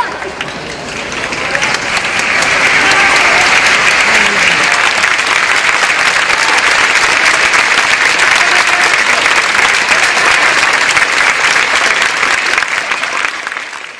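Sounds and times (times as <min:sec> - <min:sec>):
crowd applauding: 0:00.0 - 0:13.9.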